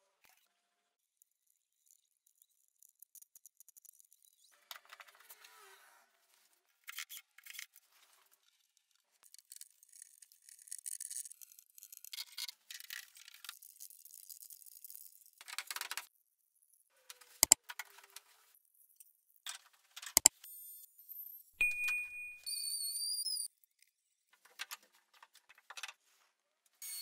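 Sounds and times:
sharp ringing click: 21.6 - 22.5.

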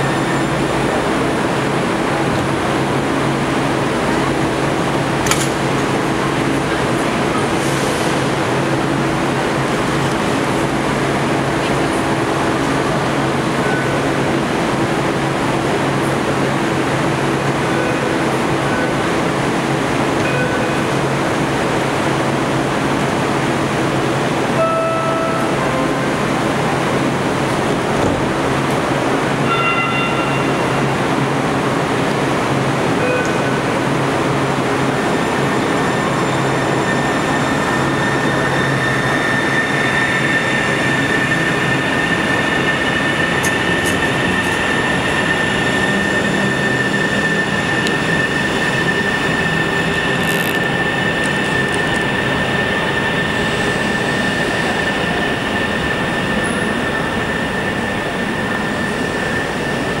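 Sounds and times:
light rail train rumbling: 0.0 - 60.0
high whine: 35.4 - 59.8.

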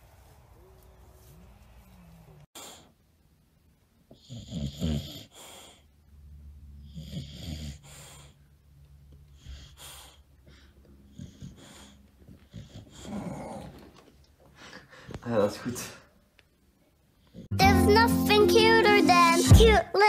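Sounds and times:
dog snoring: 4.1 - 5.8, 6.7 - 8.4, 11.0 - 13.8.

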